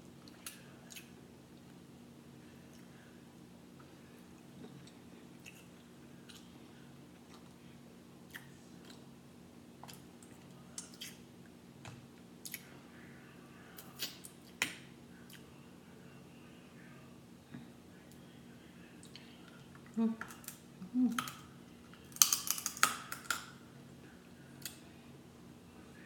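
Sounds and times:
chewing: 4.7s - 6.5s, 7.2s - 7.6s
seafood shells crackling: 22.1s - 23.4s.

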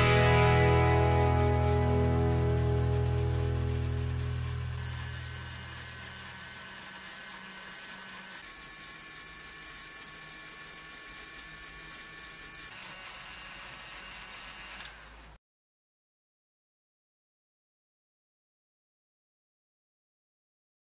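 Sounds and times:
faint high whine: 0.0s - 6.8s
toy electric motor whirring: 0.0s - 15.4s.

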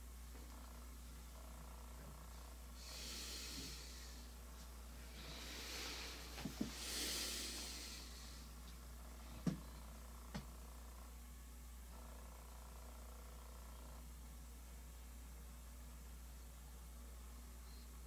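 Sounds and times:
low steady hum: 0.0s - 18.0s
hissy breaths: 2.7s - 8.7s.

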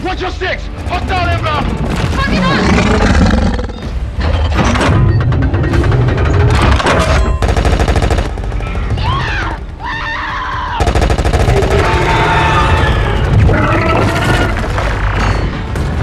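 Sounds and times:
robot cannons firing bursts: 4.8s - 8.8s, 10.8s - 14.8s.

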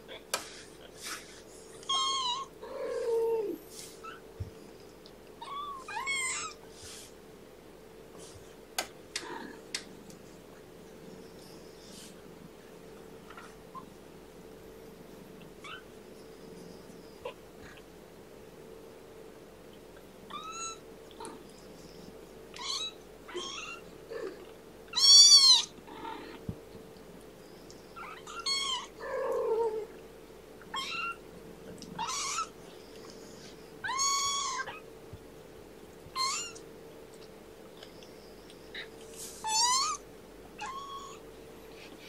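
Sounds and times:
kittens mewing: 1.8s - 4.3s, 5.4s - 6.6s, 22.5s - 26.4s, 28.0s - 30.0s, 31.9s - 32.6s, 33.8s - 34.9s, 36.2s - 36.6s, 38.7s - 40.0s, 40.6s - 41.2s.

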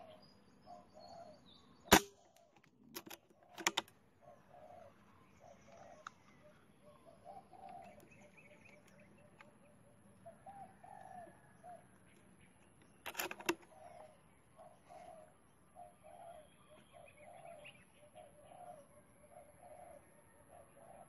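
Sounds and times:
bird calling: 0.0s - 21.0s
air rifle shot: 1.9s - 2.2s.

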